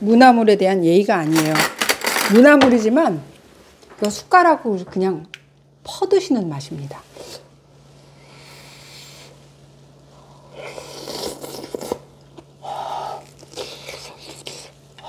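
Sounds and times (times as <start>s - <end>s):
low steady hum: 0.0s - 15.0s
noisy nasal breathing: 7.1s - 12.0s, 12.6s - 15.0s
person chewing: 10.6s - 15.0s.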